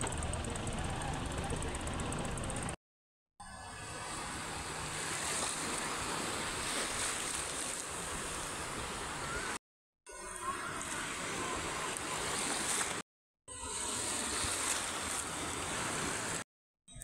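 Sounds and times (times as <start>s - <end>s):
waves washing on sandy beach: 3.9s - 9.6s, 10.4s - 13.0s, 13.6s - 16.4s.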